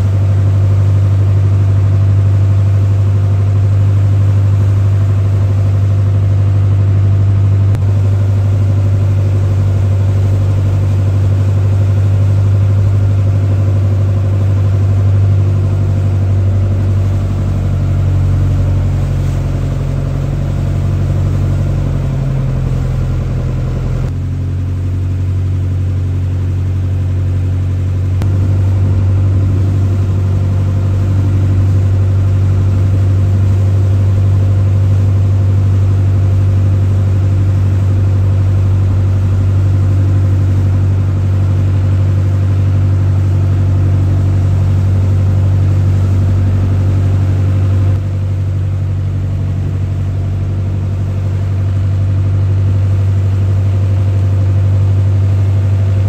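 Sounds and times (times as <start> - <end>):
boat engine droning: 0.0 - 56.0.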